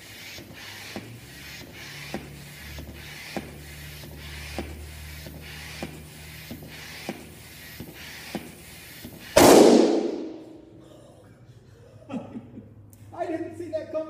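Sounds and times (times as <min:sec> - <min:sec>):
air pump strokes: 0:00.0 - 0:10.6
balloon bursting pop: 0:09.4 - 0:10.5.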